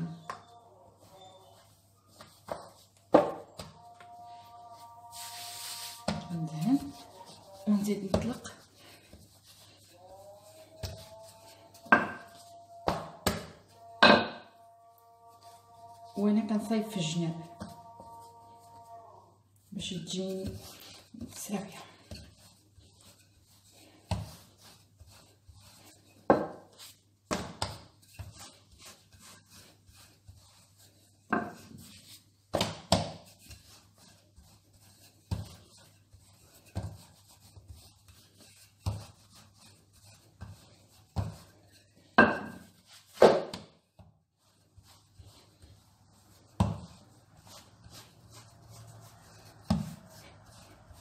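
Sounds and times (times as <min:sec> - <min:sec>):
rolling pin rolling over dough: 0:00.0 - 0:51.0
rolling pin knocking on countertop: 0:11.8 - 0:13.4, 0:26.3 - 0:26.7, 0:31.3 - 0:31.6, 0:42.2 - 0:43.7.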